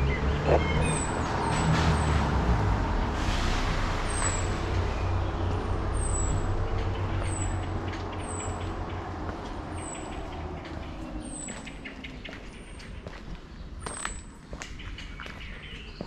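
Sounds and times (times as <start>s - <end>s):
heavy vehicle engine rumble: 0.0s - 11.8s.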